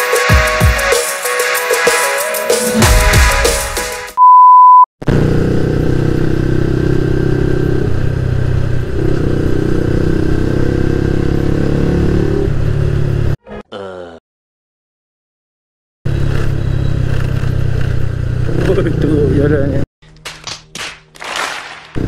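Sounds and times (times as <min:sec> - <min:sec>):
electronic music: 0:00.0 - 0:04.2
loud steady beep: 0:04.2 - 0:04.9
motorcycle engine running: 0:05.1 - 0:13.2, 0:16.1 - 0:19.8.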